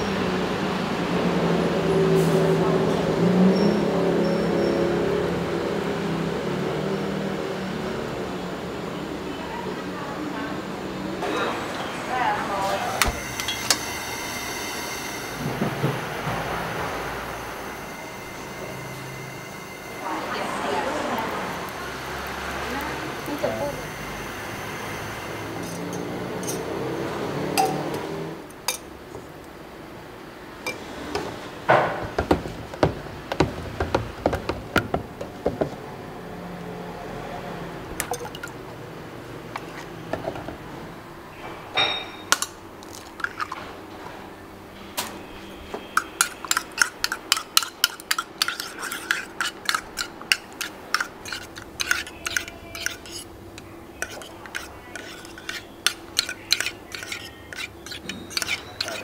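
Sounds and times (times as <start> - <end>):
metal utensils clinking on cookware: 25.6 - 28.1, 41.7 - 43.7, 45.8 - 59.0
spoon stirring batter in metal cup: 42.3 - 43.6, 45.8 - 59.0.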